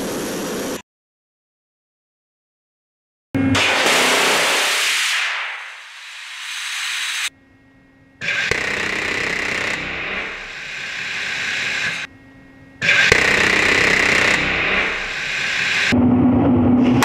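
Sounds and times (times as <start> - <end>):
steady low hum: 6.0 - 17.0.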